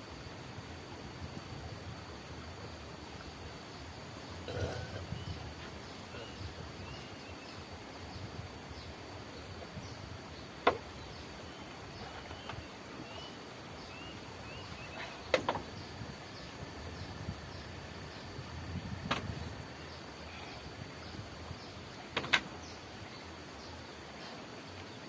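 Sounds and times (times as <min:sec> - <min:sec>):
small birds chirping: 0:03.7 - 0:25.0.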